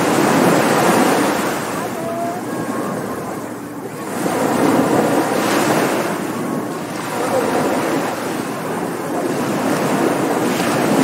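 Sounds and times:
waves breaking on beach: 0.0s - 11.0s.

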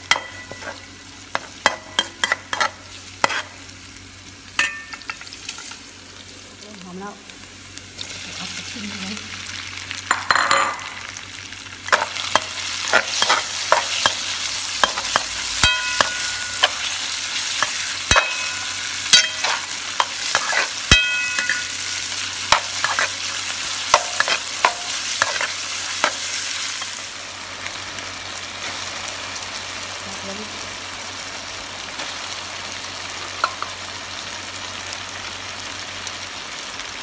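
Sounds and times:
food sizzling in oil: 0.0s - 37.0s
metal spatula scraping and clanking: 0.1s - 3.6s, 11.9s - 21.8s, 22.5s - 26.9s.

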